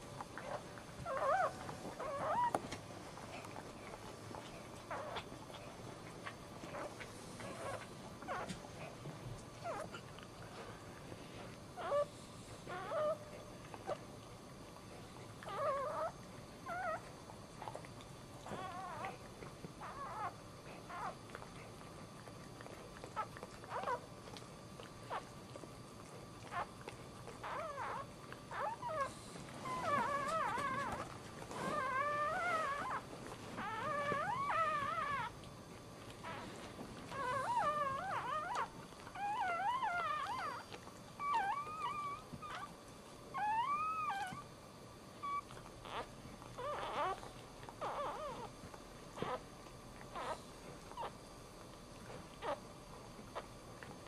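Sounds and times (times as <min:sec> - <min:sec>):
puppy crying high-pitched squeals: 0:33.6 - 0:35.3, 0:37.1 - 0:40.6, 0:41.2 - 0:42.7, 0:43.3 - 0:44.4, 0:45.2 - 0:48.5.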